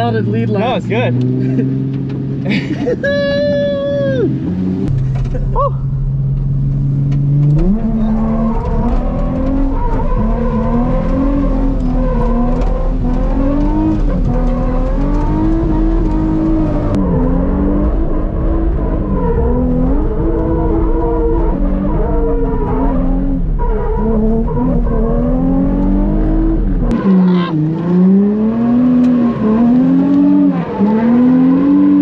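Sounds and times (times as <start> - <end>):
car engine revving hard: 7.0 - 32.0.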